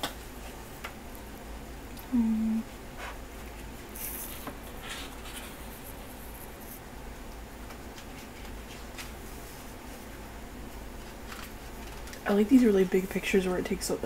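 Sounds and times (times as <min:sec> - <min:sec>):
paper pages rustling: 0:03.6 - 0:06.8, 0:07.9 - 0:09.8, 0:11.0 - 0:12.7
paper rubbing scrapes: 0:04.0 - 0:06.8.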